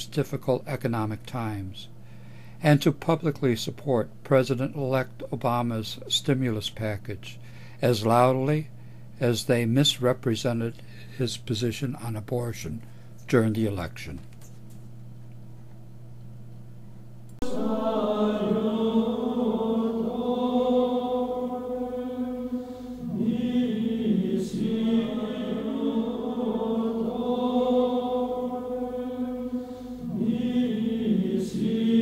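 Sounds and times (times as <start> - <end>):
low steady hum: 0.0 - 32.0
slow vocal chant: 17.4 - 32.0.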